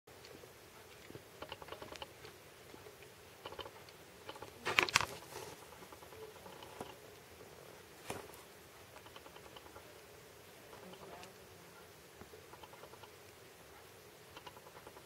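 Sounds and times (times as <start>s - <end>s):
kittens scuffling: 0.2s - 7.2s, 7.8s - 9.6s.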